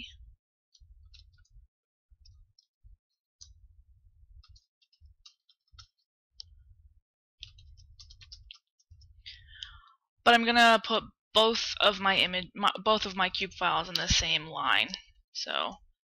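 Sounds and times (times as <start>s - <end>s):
keyboard typing: 4.4s - 6.1s, 7.4s - 9.1s.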